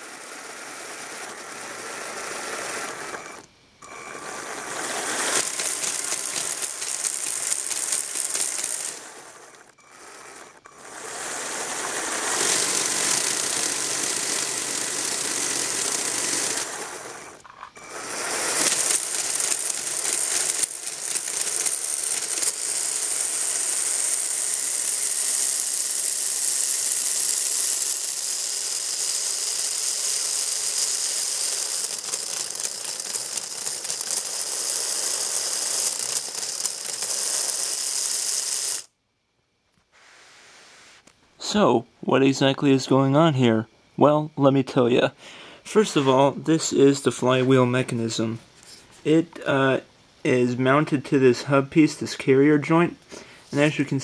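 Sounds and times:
plastic gears whirring and rattling: 0.0s - 38.9s.

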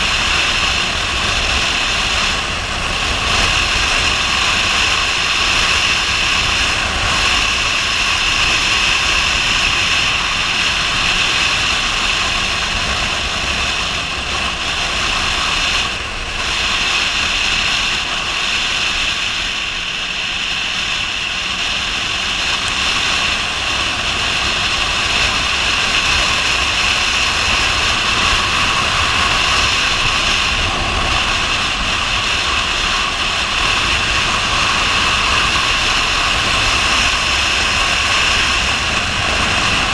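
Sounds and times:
motorcycle engine running: 0.0s - 39.9s
wind rushing over camera: 0.0s - 39.9s.

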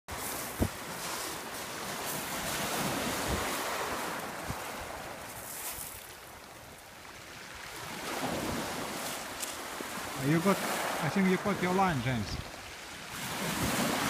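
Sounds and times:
waves washing up shingle beach: 0.1s - 14.0s
wind buffeting microphone: 2.4s - 5.3s.

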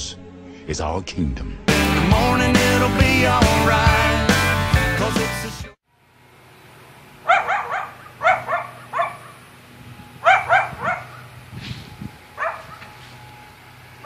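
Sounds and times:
dog yapping: 7.2s - 9.4s, 10.2s - 11.4s, 12.4s - 12.9s.

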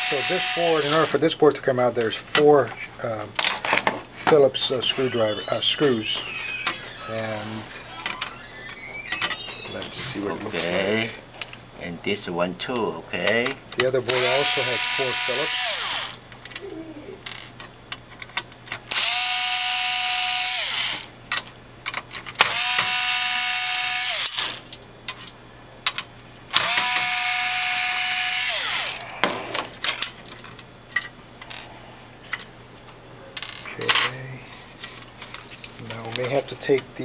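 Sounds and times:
electric screwdriver whirring: 0.0s - 1.2s, 14.1s - 16.2s, 18.9s - 21.1s, 22.4s - 24.6s, 26.6s - 29.0s
screws and metal rattling: 3.5s - 11.1s.

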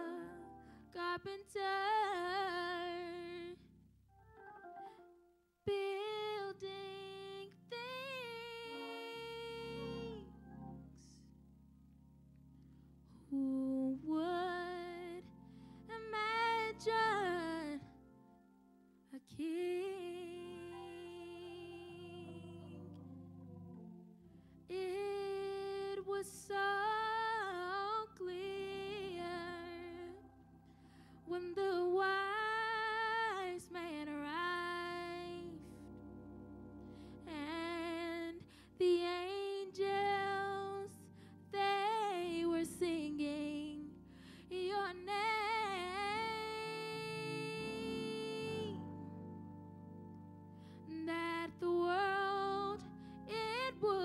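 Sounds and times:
woman singing a slow ballad: 0.0s - 3.6s, 5.7s - 10.3s, 13.1s - 18.0s, 19.1s - 22.8s, 24.7s - 30.2s, 31.2s - 35.8s, 37.0s - 49.2s, 50.8s - 54.0s
soft instrumental accompaniment: 0.0s - 54.0s.

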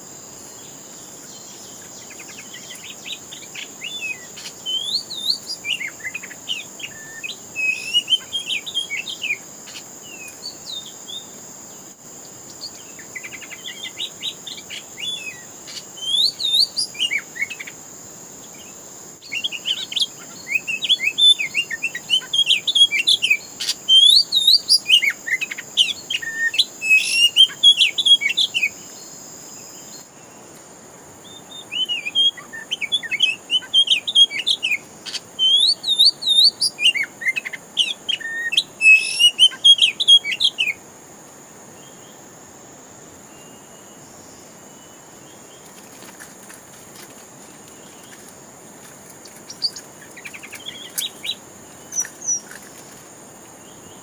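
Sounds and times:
high insect drone: 0.0s - 54.0s
bird singing whistles and chirps: 1.4s - 11.3s, 12.6s - 17.8s, 18.6s - 28.8s, 31.2s - 40.8s, 49.5s - 52.8s.

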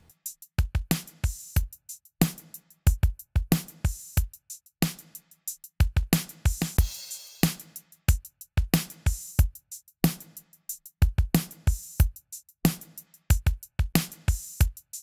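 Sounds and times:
drum kit beat: 0.0s - 15.0s.

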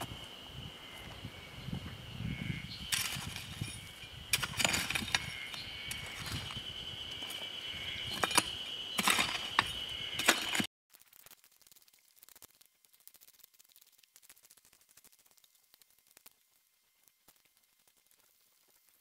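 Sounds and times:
high insect drone: 0.0s - 10.7s
shovel scraping stony soil: 2.9s - 10.7s.

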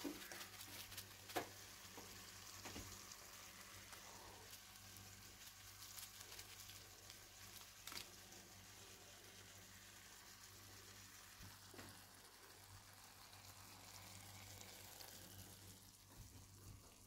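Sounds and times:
faint hiss: 0.0s - 17.0s.

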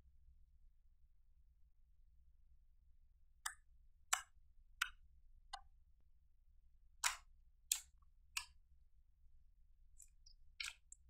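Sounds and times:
slime clicking when pressed: 7.0s - 8.5s.

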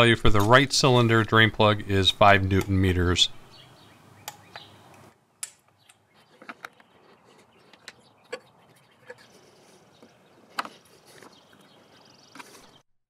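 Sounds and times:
hand tools clicking and knocking: 5.4s - 11.7s.

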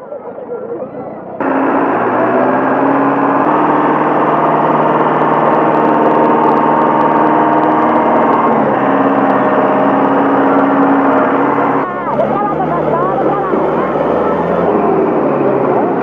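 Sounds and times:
tractor engine under load: 1.4s - 16.0s
wheels churning through mud: 1.4s - 16.0s.

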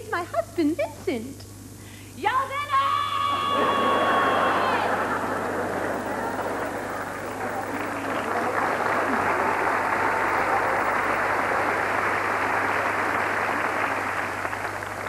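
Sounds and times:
audience applauding: 3.4s - 15.0s.

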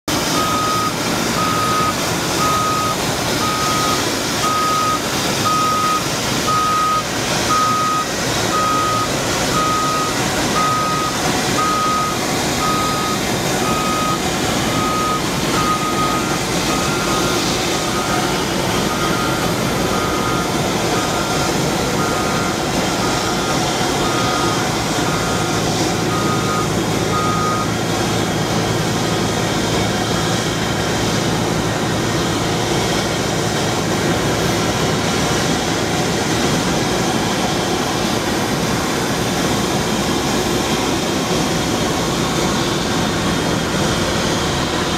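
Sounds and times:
forklift engine running: 0.1s - 44.9s
reversing alarm beeping: 0.2s - 28.5s.

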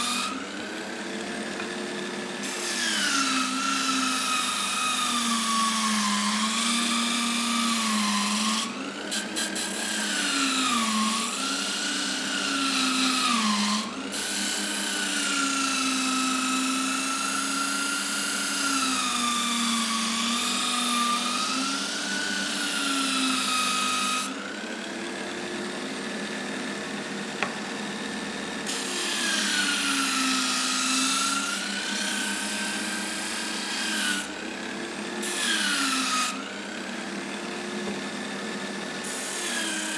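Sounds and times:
sanding disc motor whine: 0.0s - 7.5s.

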